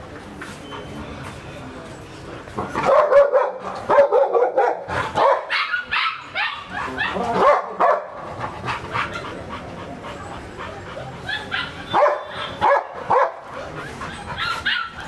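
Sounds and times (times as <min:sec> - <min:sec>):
dog barking: 0:02.8 - 0:08.2, 0:11.5 - 0:13.4.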